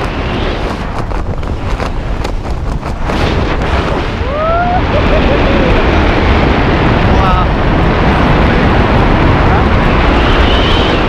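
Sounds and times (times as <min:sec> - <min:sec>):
wind buffeting microphone: 0:00.0 - 0:11.0
person's voice: 0:07.1 - 0:07.6.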